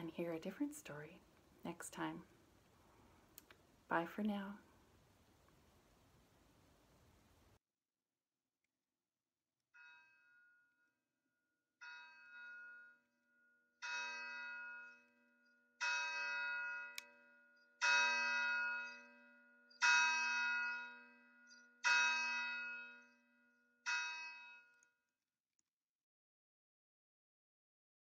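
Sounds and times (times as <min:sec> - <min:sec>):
church bell tolling: 0:13.8 - 0:15.1, 0:15.8 - 0:23.2, 0:23.9 - 0:24.6.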